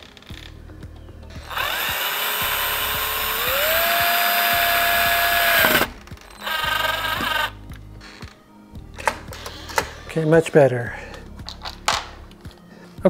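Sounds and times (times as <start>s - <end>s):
cordless drill motor whine: 1.3s - 7.6s.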